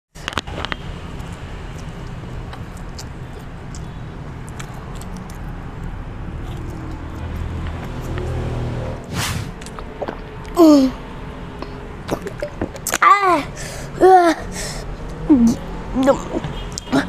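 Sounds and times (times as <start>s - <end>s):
wet mouth clicks: 1.3s - 8.3s, 9.6s - 10.6s, 11.6s - 13.0s.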